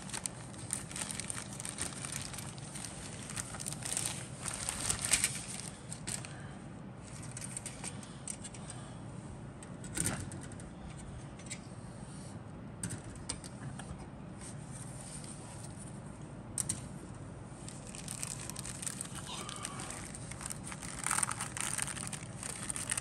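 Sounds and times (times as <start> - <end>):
plastic bags crinkling: 0.0 - 6.4, 17.7 - 23.0.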